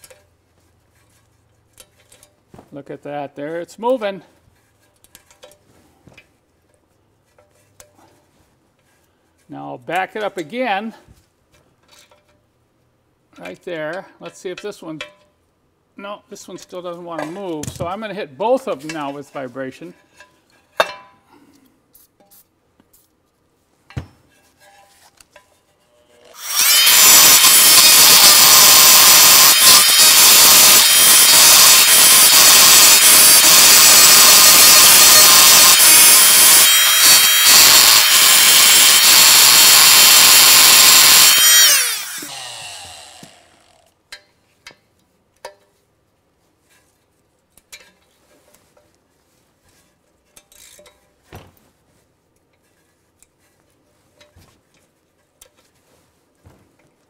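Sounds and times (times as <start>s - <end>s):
oscillating multi-tool running: 26.3s - 43.9s.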